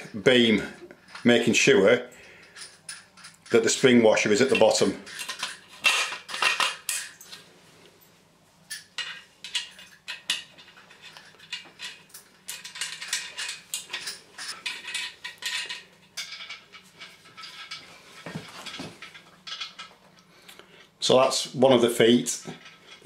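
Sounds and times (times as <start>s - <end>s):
metallic clinks and rattles: 2.1s - 7.5s, 8.7s - 20.0s.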